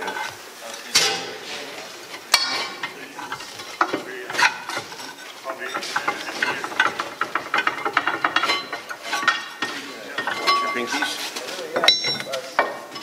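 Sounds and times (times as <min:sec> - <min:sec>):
steel tools clanking on metal: 0:00.0 - 0:13.0
ringing clicks: 0:11.8 - 0:12.3.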